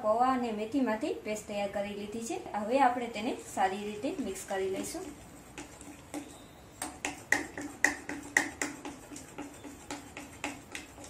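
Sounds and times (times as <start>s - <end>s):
hand slapping batter in glass bowl: 4.0s - 11.0s.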